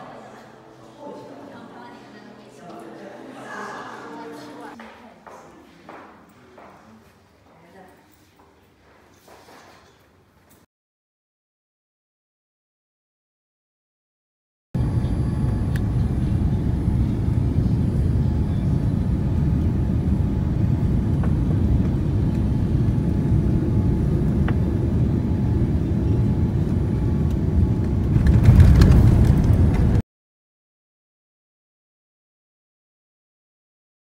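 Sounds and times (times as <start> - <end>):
jet engine low rumble in cabin: 14.8 - 30.0.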